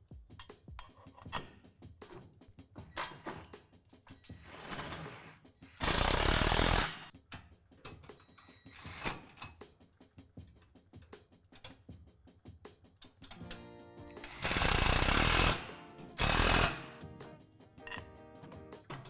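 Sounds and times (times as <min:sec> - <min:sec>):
cordless drill driving screw: 0:14.2 - 0:15.6, 0:16.2 - 0:16.8.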